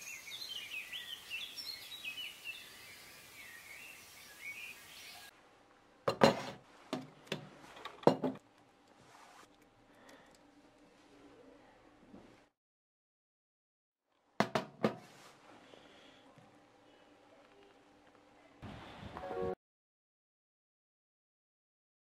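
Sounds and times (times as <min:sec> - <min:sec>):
small birds chirping: 0:00.0 - 0:05.3.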